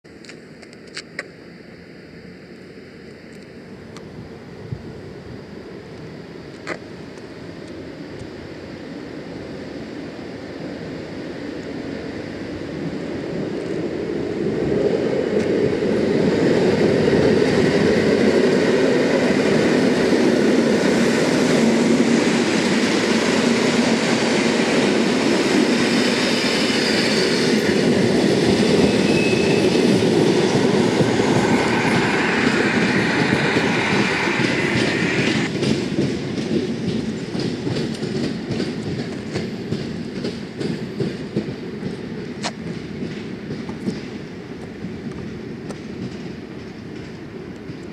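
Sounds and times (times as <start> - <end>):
train wheels rumbling and clacking: 11.2 - 47.9
high squeal: 25.7 - 35.5.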